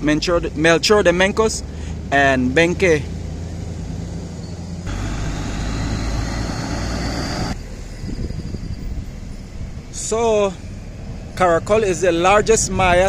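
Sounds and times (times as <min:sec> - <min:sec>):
traffic rumble: 0:00.0 - 0:13.0
vehicle passing close: 0:02.8 - 0:07.8.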